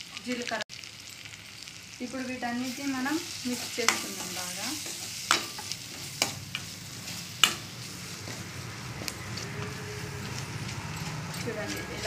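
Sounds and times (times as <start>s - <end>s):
food sizzling: 0.0s - 12.0s
spoon scraping a pan: 2.8s - 12.0s.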